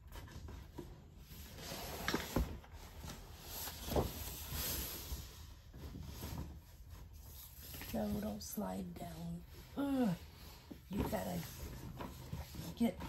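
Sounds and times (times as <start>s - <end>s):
paper and cardboard rustling: 10.4s - 13.0s.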